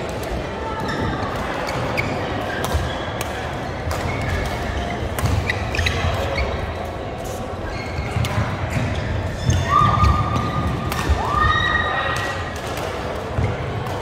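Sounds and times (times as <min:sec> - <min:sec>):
shoe squeaks: 0:00.8 - 0:03.1, 0:04.0 - 0:09.8.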